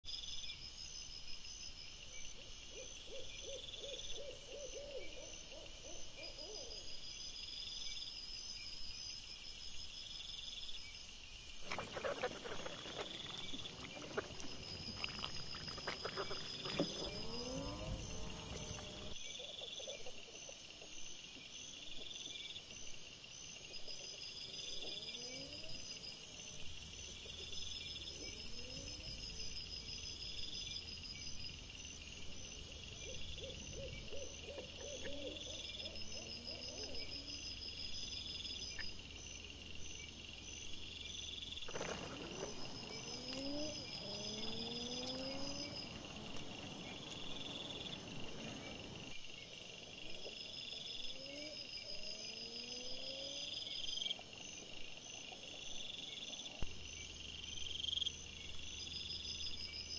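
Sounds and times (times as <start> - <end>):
crickets chirping: 0.1 - 59.9
rustling: 11.6 - 19.2, 41.6 - 43.3
wild boar grunting: 11.6 - 19.2
boar squealing: 11.7 - 19.1.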